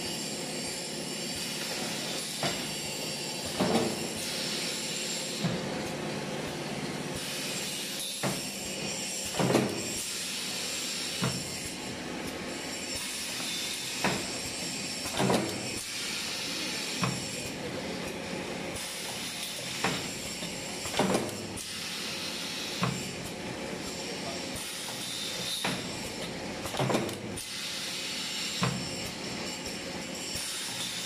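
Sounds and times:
steady machine hiss: 0:00.0 - 0:05.4, 0:07.1 - 0:15.1, 0:15.7 - 0:17.6, 0:21.6 - 0:23.0, 0:27.4 - 0:31.0.

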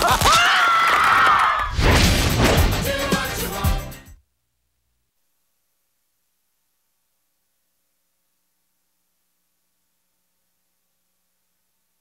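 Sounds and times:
audience screaming: 0:00.2 - 0:01.7
heavy crash-like hit: 0:01.7 - 0:03.0
trailer music: 0:01.8 - 0:04.2.

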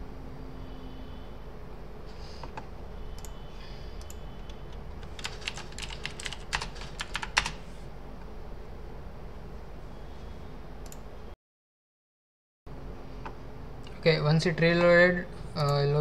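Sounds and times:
keyboard typing: 0:04.0 - 0:07.6.

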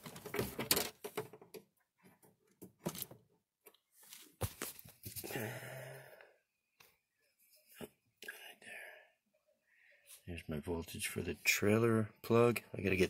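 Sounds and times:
clicks and rustles of wiring: 0:00.0 - 0:05.3.

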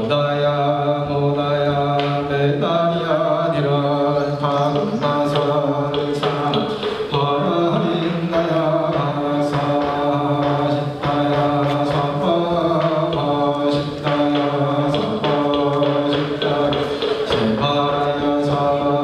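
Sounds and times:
monks chanting in low voices: 0:00.0 - 0:19.0.

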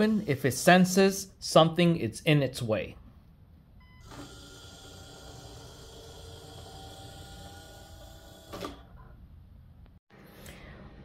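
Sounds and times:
small electric motor whirring: 0:04.0 - 0:08.8.

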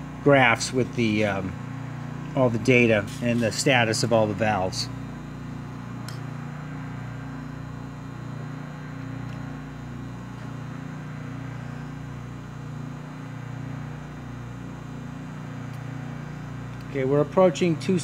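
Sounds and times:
low machine hum: 0:00.0 - 0:18.0.

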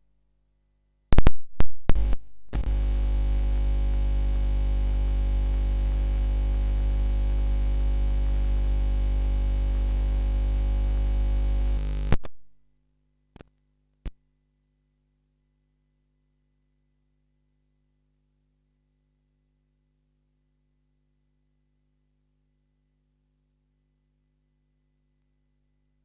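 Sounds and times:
electrical pops and crackles: 0:01.1 - 0:12.6
loud electrical mains buzz: 0:01.9 - 0:12.3.

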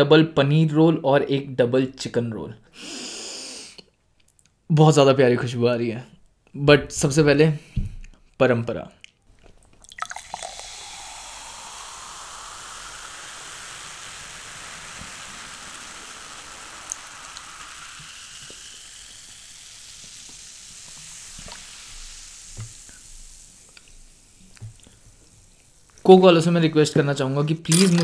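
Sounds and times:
soda pouring into mug: 0:09.4 - 0:25.9, 0:27.6 - 0:28.0
fizzing carbonation hiss: 0:09.5 - 0:26.8, 0:27.5 - 0:28.0.

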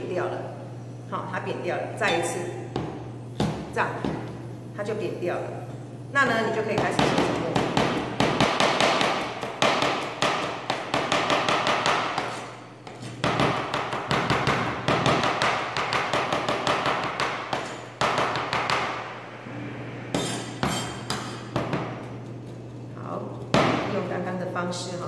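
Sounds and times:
knife chopping on plastic board: 0:06.7 - 0:19.0.

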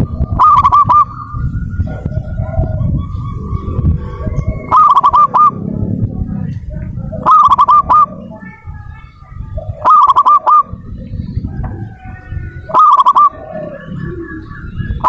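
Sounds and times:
dove cooing: 0:00.0 - 0:15.0
soft bird calls: 0:00.0 - 0:15.0.

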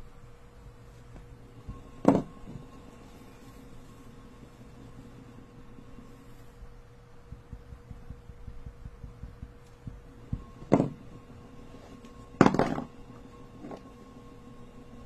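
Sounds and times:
motorised turntable humming: 0:00.0 - 0:15.0
marker knocking on spinning disc: 0:01.6 - 0:02.7, 0:07.2 - 0:11.2, 0:12.4 - 0:13.0
handling thumps: 0:07.3 - 0:11.0.

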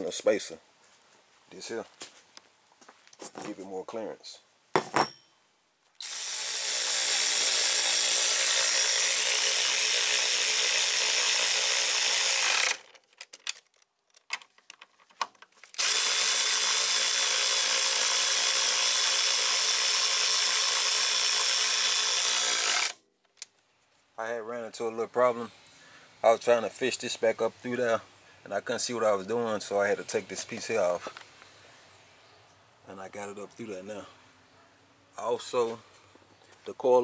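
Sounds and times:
handheld power tool running: 0:06.0 - 0:12.9, 0:15.7 - 0:23.0.

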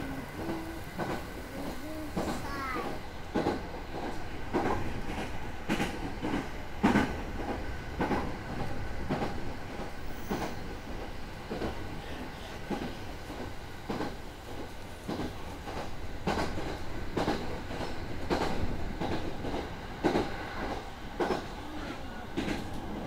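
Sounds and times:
rail joints clacking: 0:00.0 - 0:23.0
train wheels rumbling on rail: 0:00.0 - 0:23.0.

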